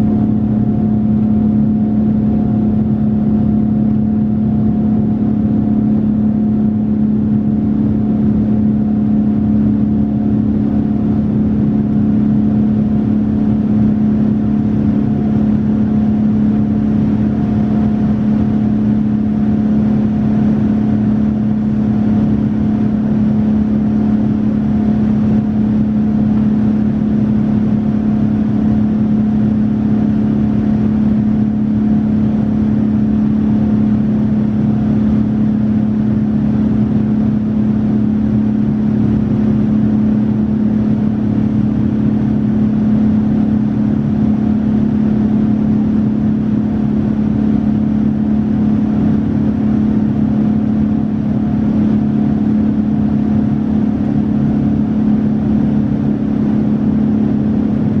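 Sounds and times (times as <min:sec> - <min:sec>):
jet engines low hum: 0:00.0 - 0:58.0.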